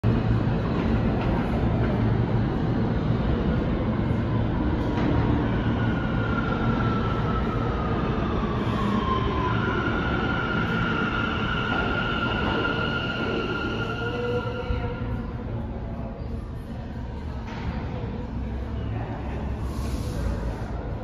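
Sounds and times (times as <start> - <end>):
subway train rumble: 0.0 - 21.0
high train squeal: 4.2 - 15.7.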